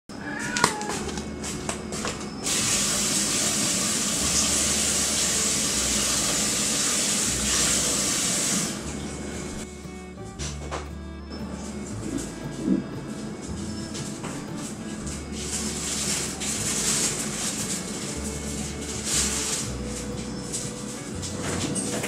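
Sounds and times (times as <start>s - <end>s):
cat meowing: 0.1s - 1.3s
loud water-like hiss: 2.4s - 8.8s.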